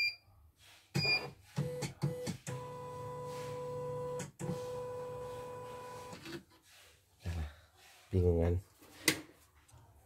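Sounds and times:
machine beep: 0:00.0 - 0:00.2.

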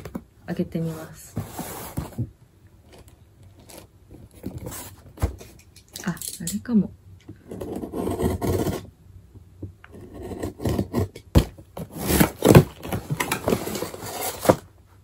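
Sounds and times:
cardboard rubbing and scraping: 0:00.8 - 0:02.3, 0:07.5 - 0:08.9, 0:10.0 - 0:14.7.

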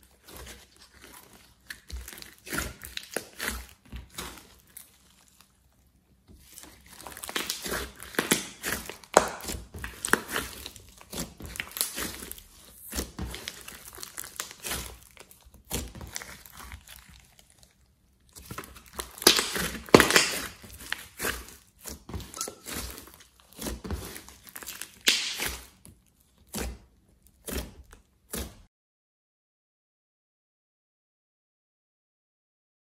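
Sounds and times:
slime crackling and popping: 0:00.2 - 0:05.5, 0:06.4 - 0:26.7.

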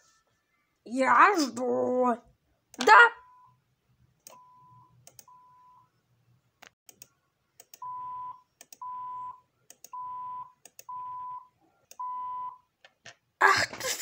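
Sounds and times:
censor beeps: 0:04.3 - 0:05.9, 0:07.8 - 0:12.6.

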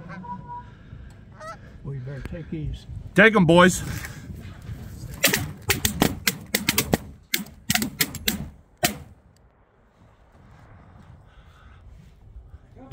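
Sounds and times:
rapid shotgun shots: 0:05.2 - 0:09.2.

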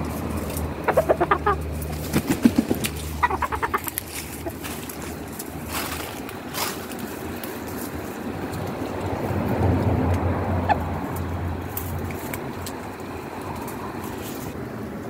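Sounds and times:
chickens clucking: 0:00.0 - 0:09.2, 0:10.1 - 0:12.9.

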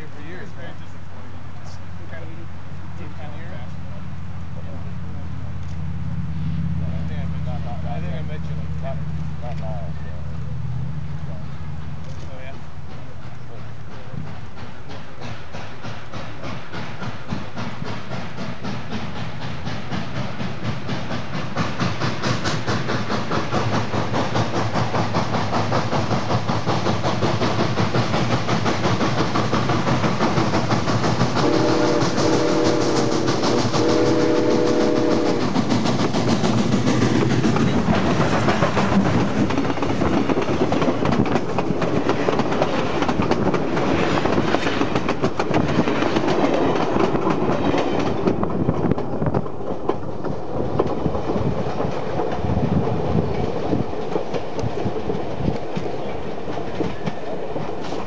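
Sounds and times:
train wheels rumbling on rails: 0:00.0 - 0:58.0
steam whistle blasts: 0:31.4 - 0:35.4.

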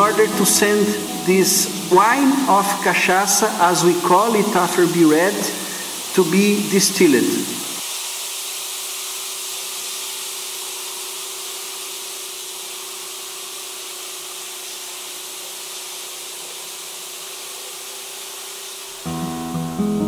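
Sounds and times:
acoustic guitar music: 0:00.0 - 0:06.0, 0:19.0 - 0:20.0
fermenting juice fizzing: 0:03.3 - 0:19.0.

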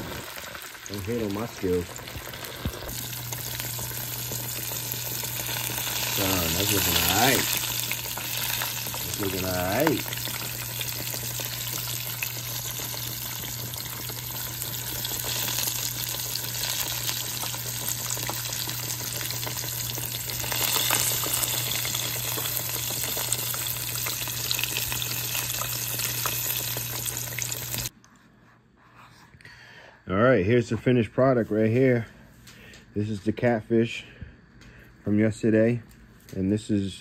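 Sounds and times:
fish deep-frying in oil: 0:00.0 - 0:27.9.

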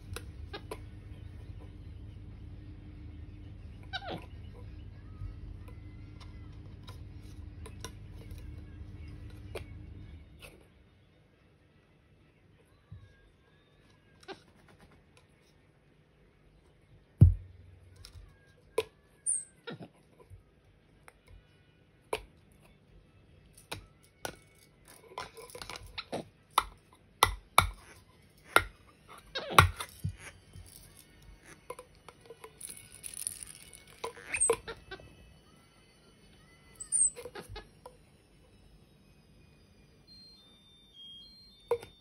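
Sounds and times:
high chirps: 0:36.4 - 0:37.7.

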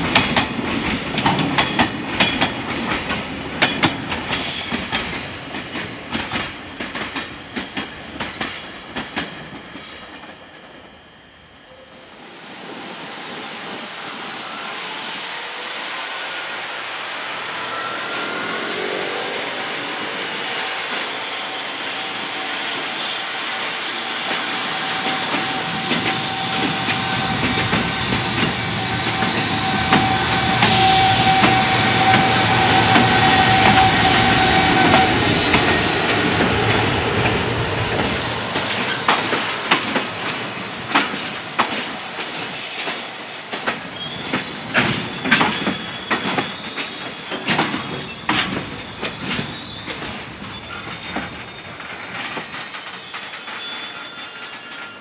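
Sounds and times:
freight train rumbling: 0:00.0 - 0:55.0
steady high tone: 0:14.1 - 0:22.5, 0:23.9 - 0:39.4
wheels clanking over rail joints: 0:24.3 - 0:53.7.

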